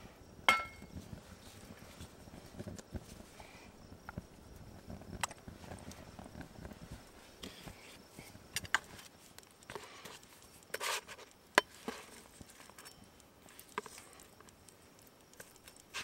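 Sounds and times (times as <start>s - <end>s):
utensil scraping: 9.7s - 13.0s.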